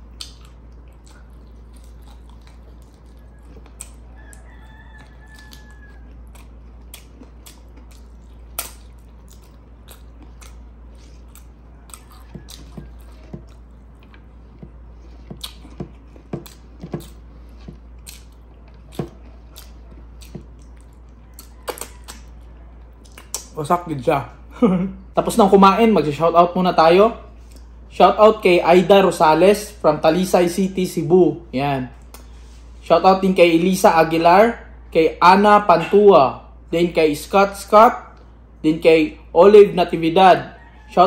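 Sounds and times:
person chewing and lip smacking: 0:00.0 - 0:23.6, 0:27.4 - 0:27.8, 0:32.0 - 0:32.4
low hum: 0:00.0 - 0:32.9.

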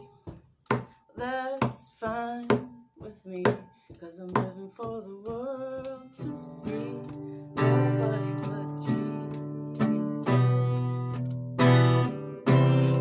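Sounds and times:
acoustic guitar strumming: 0:05.8 - 0:13.0.

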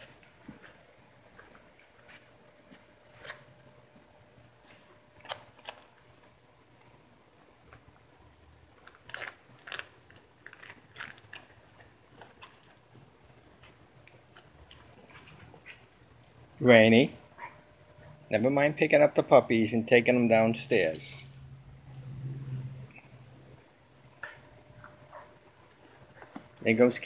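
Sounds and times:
puppies chewing on boot: 0:00.0 - 0:07.0, 0:08.6 - 0:18.8, 0:22.8 - 0:27.0.

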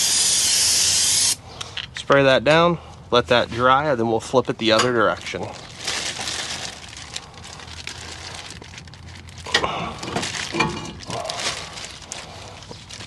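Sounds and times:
plastic bag crinkling: 0:04.9 - 0:13.0.

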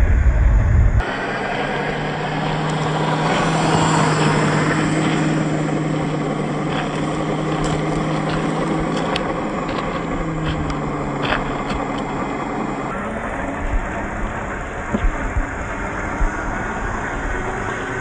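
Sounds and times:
electric motors humming: 0:00.0 - 0:18.0
tyres crunching over gravel: 0:01.6 - 0:15.9
pebble ticks: 0:05.0 - 0:12.3.

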